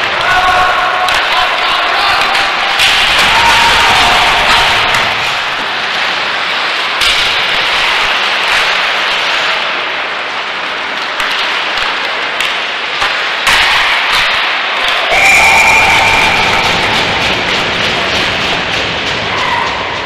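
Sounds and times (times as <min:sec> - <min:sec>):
skates scraping ice: 0:00.0 - 0:15.1
sticks and puck clacking: 0:00.0 - 0:20.0.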